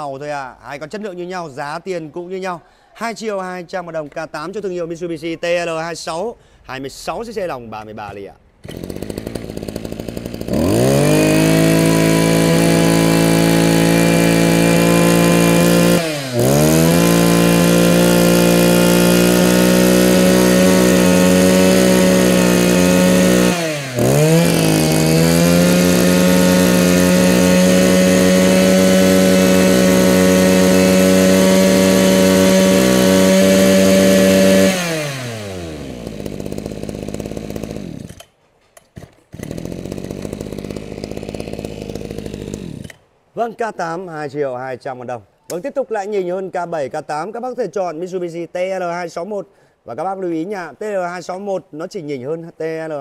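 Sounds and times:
brush cutter engine revving: 8.6s - 43.0s.

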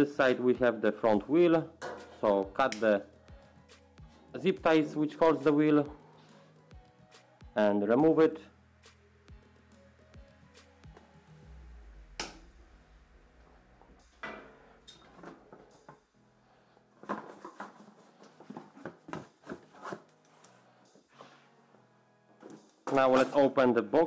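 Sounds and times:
clattering and rustling cardboard: 17.0s - 20.1s.

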